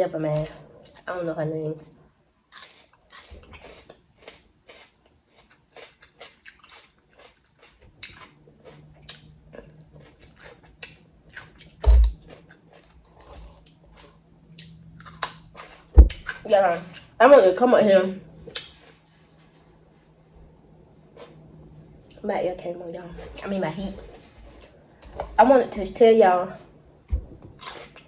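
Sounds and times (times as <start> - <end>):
crunchy chewing of pepper: 2.5 - 17.2, 18.4 - 19.8, 21.1 - 21.5, 27.6 - 28.0
heavy thump: 16.0 - 16.2, 27.1 - 27.6.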